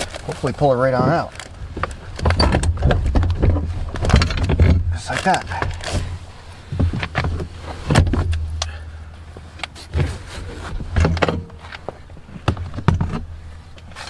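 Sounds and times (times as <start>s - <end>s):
handling rustle: 0.0s - 14.0s
thumps and knocks: 1.8s - 6.1s, 6.7s - 8.7s, 10.8s - 13.3s.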